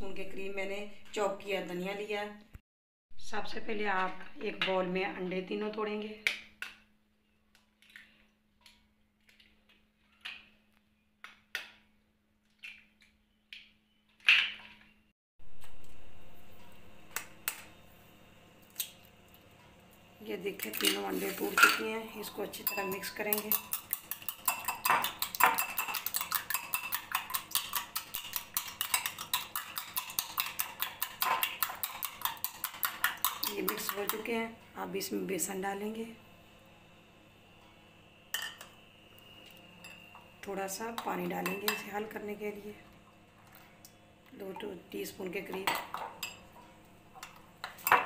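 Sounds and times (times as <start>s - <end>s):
spoon tapping and cracking eggs: 22.6s - 34.3s.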